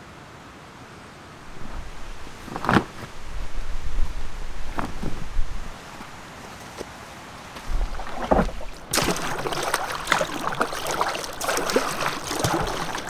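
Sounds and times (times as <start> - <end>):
paddle splashing in water: 7.6 - 13.0.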